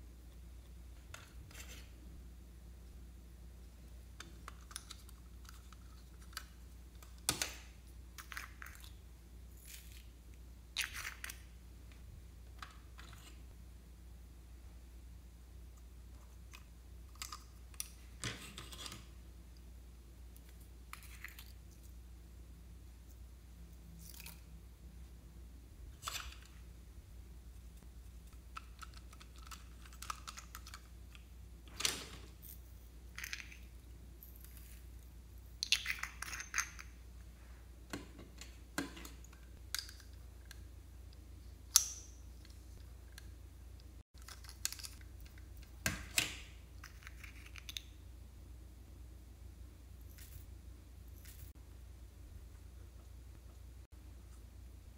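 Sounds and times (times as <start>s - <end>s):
faint low hum: 0.0s - 54.9s.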